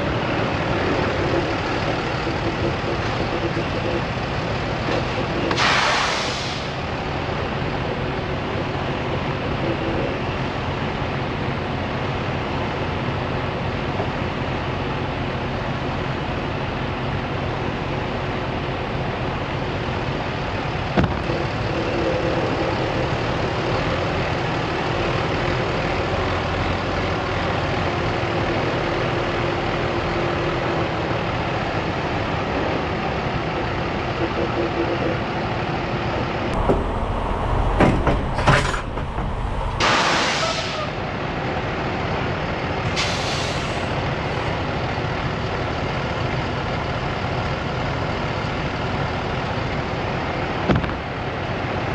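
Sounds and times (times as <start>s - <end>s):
truck diesel engine running: 35.2s - 51.9s.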